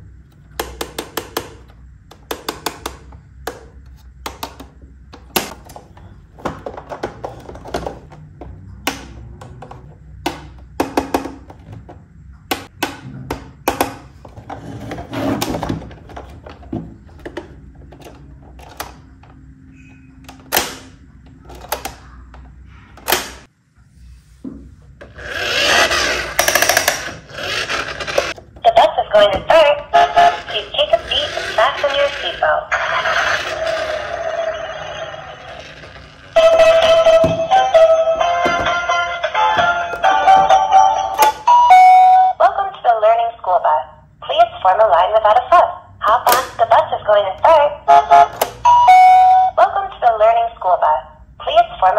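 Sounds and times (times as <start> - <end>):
toy bus rushing along table: 25.1 - 28.4, 30.0 - 41.1.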